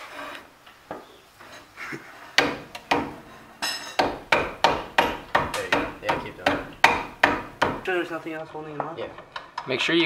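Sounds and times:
hammer knocking on metal rotor: 2.4 - 7.9.

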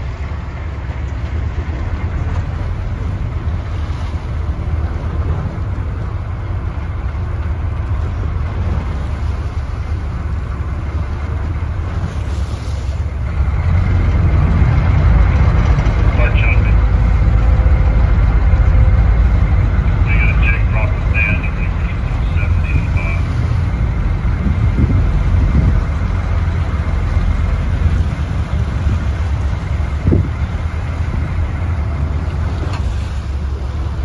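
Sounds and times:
boat engine rumble: 0.0 - 34.0
wind buffeting microphone: 23.4 - 34.0.

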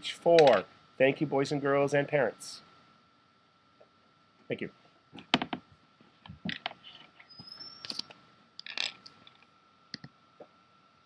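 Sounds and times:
faint high whine: 0.0 - 11.0
mouse clicks: 9.9 - 10.2.

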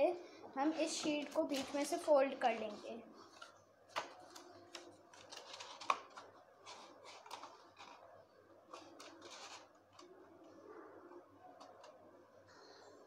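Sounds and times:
paper rustling and crackling: 0.7 - 10.6
sharp paper crack: 3.3 - 10.2.

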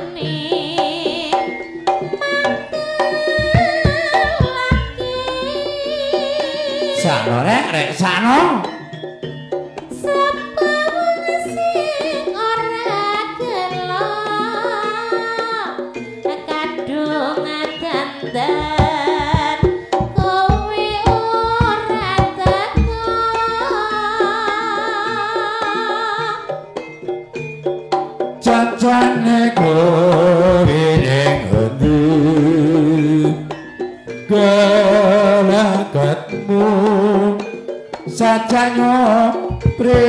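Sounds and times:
ornamented melody line: 0.0 - 40.0
hand drum strokes: 2.8 - 7.0, 18.6 - 23.9.

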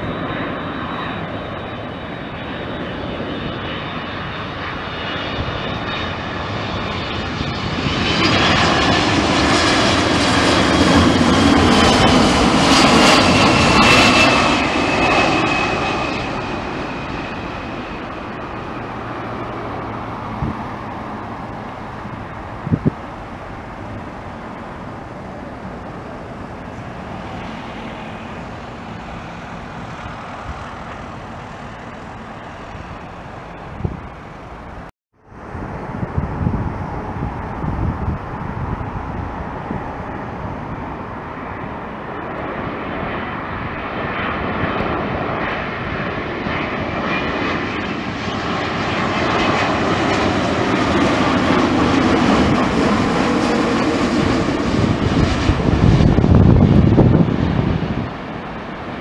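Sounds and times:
jet airliner passing overhead: 0.0 - 59.0.

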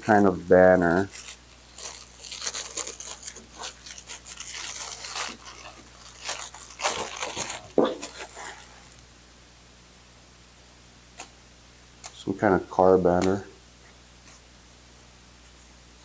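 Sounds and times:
plastic packaging rustling: 0.0 - 9.0.

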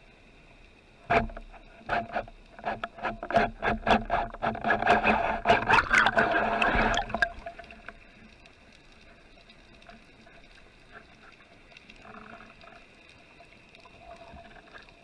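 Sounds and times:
underwater clicks and knocks: 1.1 - 8.1
bubbles rushing: 5.4 - 7.9.

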